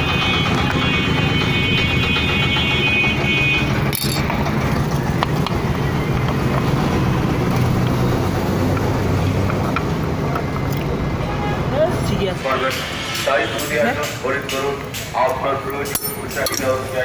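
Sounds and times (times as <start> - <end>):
vehicle engine rumbling: 0.0 - 17.0
hand tools clicking on metal: 3.9 - 4.6, 14.8 - 16.8.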